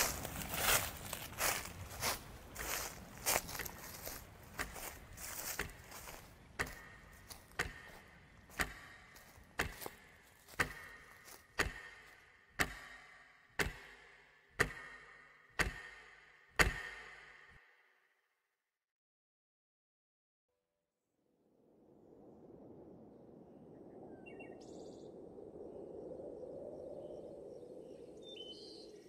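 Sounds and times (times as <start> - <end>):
clock ticking: 10.6 - 17.4.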